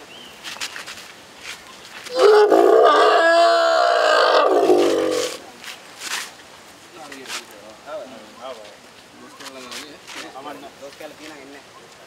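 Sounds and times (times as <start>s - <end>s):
elephant calf wavering call: 2.1s - 5.4s.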